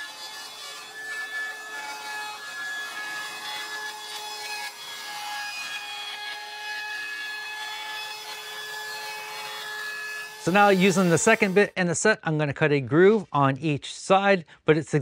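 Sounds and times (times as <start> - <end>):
router motor whine: 10.2 - 11.6
bit cutting wood hiss: 10.3 - 11.7.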